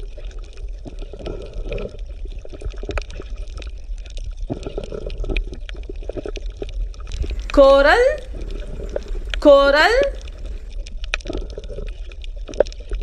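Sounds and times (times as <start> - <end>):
water bubbling and gurgling: 7.0 - 9.5, 10.1 - 10.7
steady low rumble: 7.1 - 10.7.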